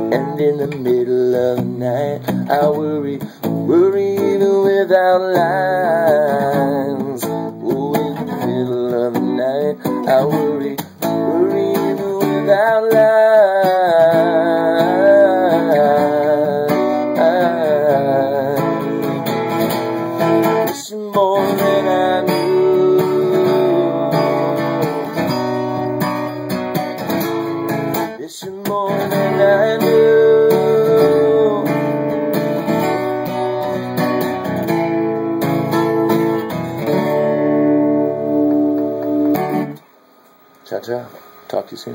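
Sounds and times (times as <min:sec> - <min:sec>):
acoustic guitar strumming: 0:00.0 - 0:41.6
man singing wavering notes: 0:20.2 - 0:26.0, 0:28.4 - 0:32.0.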